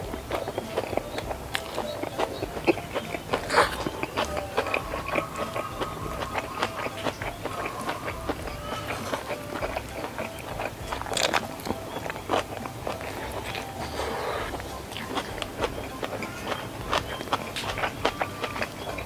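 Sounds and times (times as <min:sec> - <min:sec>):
crunchy bites: 0:00.0 - 0:19.0
person chewing: 0:00.0 - 0:19.0.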